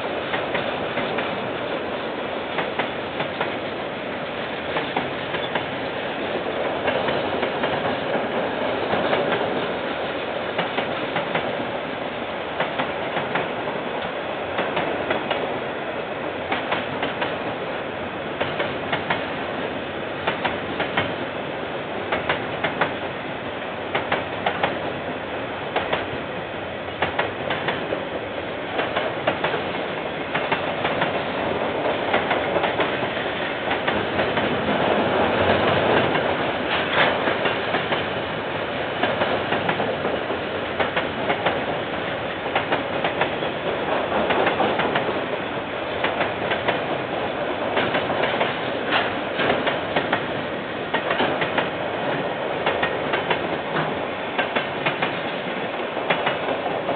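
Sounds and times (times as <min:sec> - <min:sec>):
train wagons rumbling: 0:00.0 - 0:56.9
wheels clacking over rail joints: 0:04.6 - 0:11.6, 0:18.4 - 0:19.3, 0:27.0 - 0:28.0, 0:28.7 - 0:38.2, 0:39.0 - 0:56.9.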